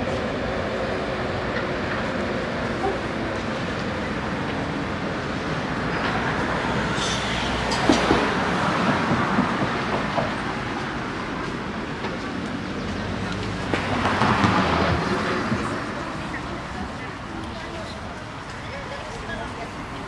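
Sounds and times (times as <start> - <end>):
vehicle rumbling past: 13.0 - 16.5.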